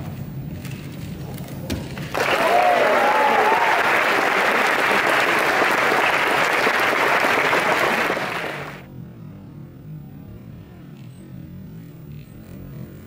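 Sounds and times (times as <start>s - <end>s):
whooping cheers: 2.1s - 8.8s
audience applause: 2.1s - 8.9s.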